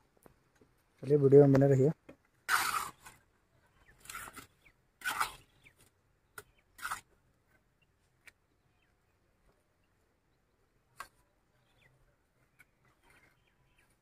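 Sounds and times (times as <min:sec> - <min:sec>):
trowel scraping metal pan: 0:02.4 - 0:03.3, 0:03.9 - 0:05.6.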